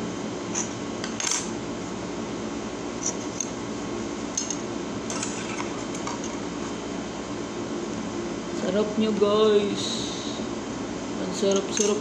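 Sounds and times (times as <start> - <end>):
low background hum: 0.0 - 12.0
cutlery clicks and rustles: 0.6 - 1.5, 4.4 - 6.4, 11.5 - 12.0.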